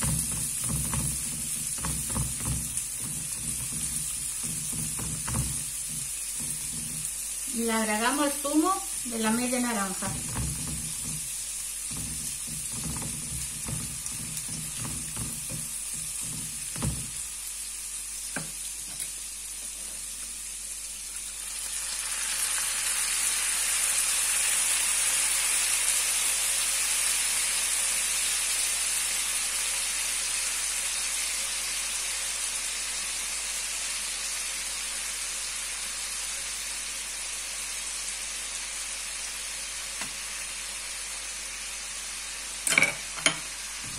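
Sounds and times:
spatula scraping pan: 0.0 - 7.3, 9.3 - 17.3
food sizzling in oil: 0.0 - 43.9.

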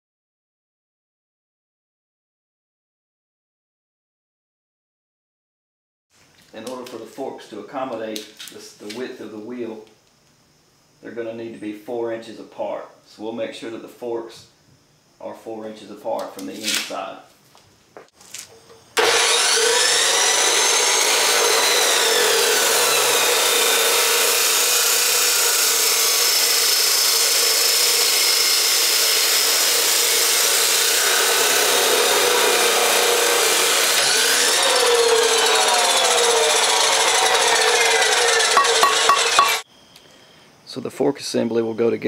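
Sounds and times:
chop saw cutting steel: 19.0 - 39.6.

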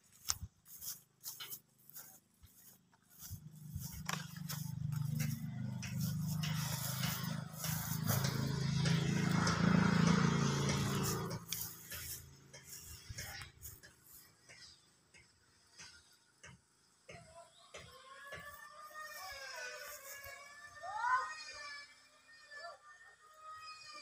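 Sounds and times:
motor droning: 0.1 - 24.0.

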